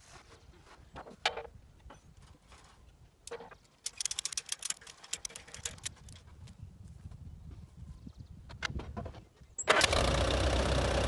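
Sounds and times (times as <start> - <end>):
ratchet strap clicking: 3.8 - 6.2.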